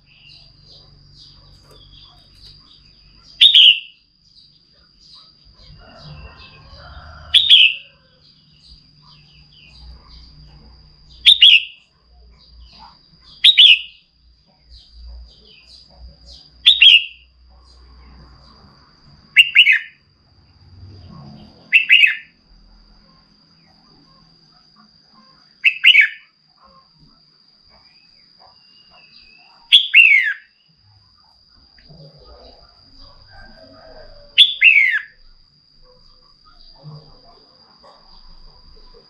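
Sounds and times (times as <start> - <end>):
bird calls: 0.0 - 6.6, 7.2 - 11.8, 12.4 - 17.8, 19.4 - 20.0, 21.2 - 22.3, 25.2 - 26.8, 27.8 - 30.6, 31.8 - 35.2.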